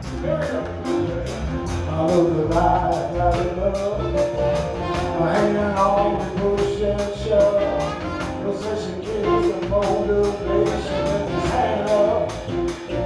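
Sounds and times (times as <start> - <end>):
congas: 0.0 - 13.0
drum kit cymbal beat: 0.0 - 13.0
electric bass: 0.0 - 13.0
saxophone: 3.6 - 6.4, 7.4 - 13.0.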